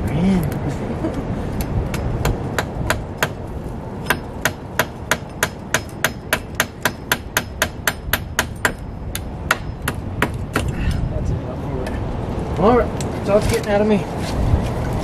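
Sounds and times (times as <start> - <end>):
hammer driving a nail: 4.0 - 10.8.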